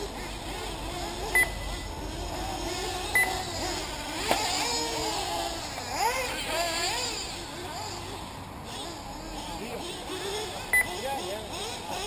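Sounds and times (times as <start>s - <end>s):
small engines revving: 0.0s - 12.0s
short electronic beep: 1.3s - 1.9s, 3.2s - 3.4s, 10.7s - 11.0s.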